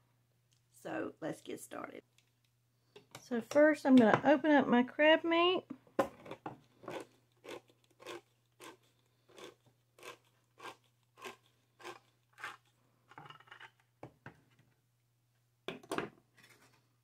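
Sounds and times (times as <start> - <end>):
can opener crunching: 6.8 - 12.7.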